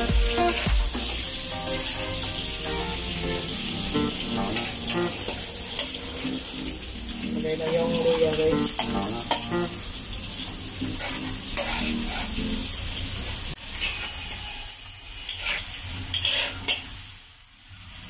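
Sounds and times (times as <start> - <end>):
food sizzling in hot oil: 0.0 - 18.0
metal spatula scraping a wok: 4.6 - 7.1, 7.7 - 9.7, 10.5 - 12.8, 13.6 - 17.0.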